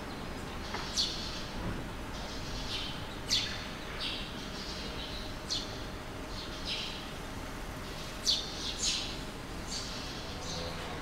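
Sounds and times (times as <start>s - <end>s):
swallows chirping: 7.8s - 10.8s.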